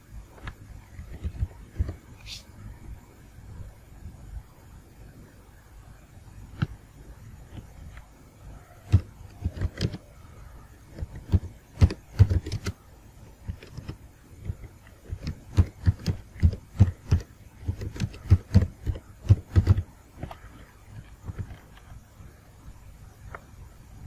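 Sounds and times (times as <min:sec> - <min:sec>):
typing on computer keyboard: 0:08.9 - 0:10.0, 0:10.9 - 0:12.8, 0:13.5 - 0:20.4.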